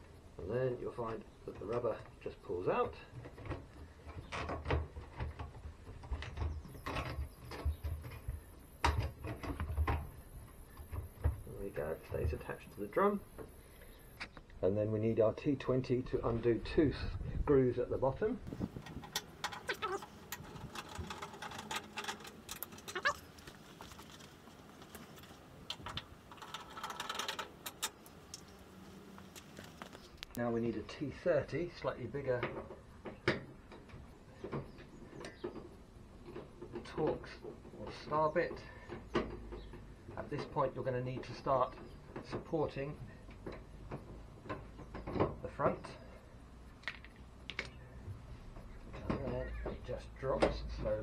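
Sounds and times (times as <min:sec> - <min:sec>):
handling rustling: 0:18.5 - 0:30.4.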